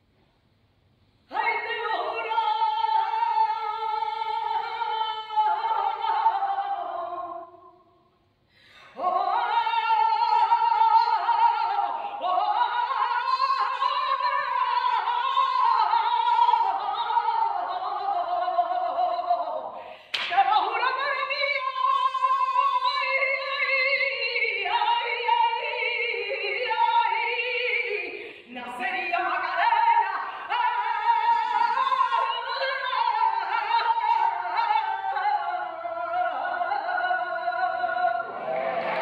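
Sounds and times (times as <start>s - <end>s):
woman singing unaccompanied: 1.3s - 7.8s, 9.0s - 38.4s.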